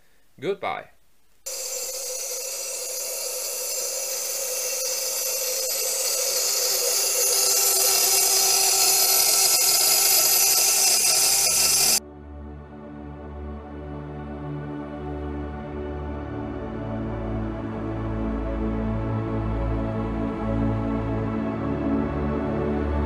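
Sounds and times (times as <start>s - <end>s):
high-pitched cavitation hiss and whine: 1.5s - 12.0s.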